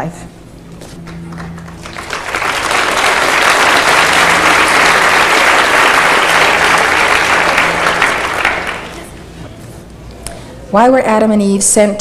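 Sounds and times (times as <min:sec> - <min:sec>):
audience applauding: 0:01.0 - 0:09.4.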